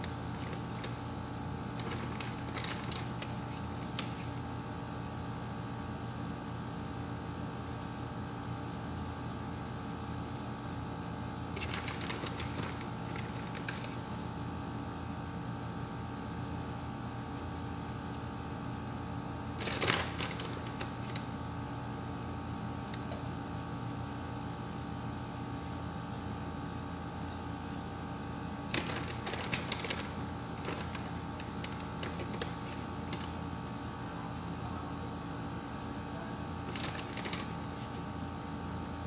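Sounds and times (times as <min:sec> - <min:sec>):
plastic bag crinkling: 0:00.0 - 0:04.3, 0:11.6 - 0:14.0, 0:19.6 - 0:21.3, 0:28.7 - 0:33.3, 0:36.7 - 0:38.0
steady machine hum: 0:00.0 - 0:39.0.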